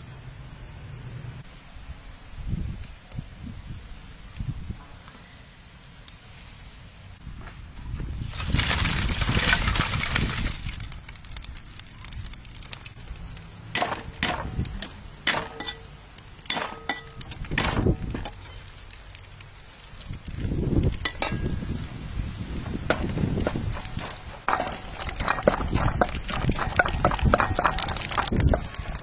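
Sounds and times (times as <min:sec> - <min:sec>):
fire crackling: 0:08.1 - 0:29.0.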